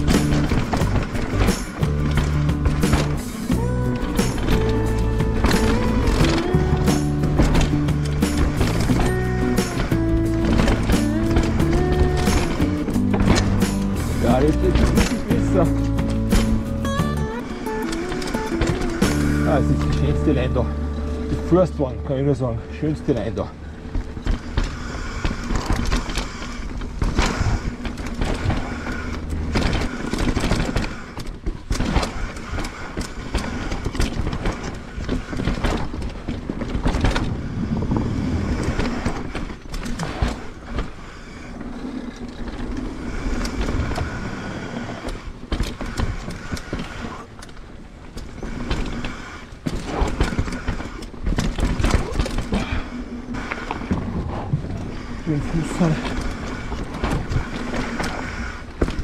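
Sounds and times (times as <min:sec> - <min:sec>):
bike knocks and rattles: 0:00.0 - 0:21.9, 0:22.8 - 0:59.0
bike tyres rolling over dirt: 0:00.0 - 0:59.0
wind rumble on microphone: 0:18.2 - 0:59.0.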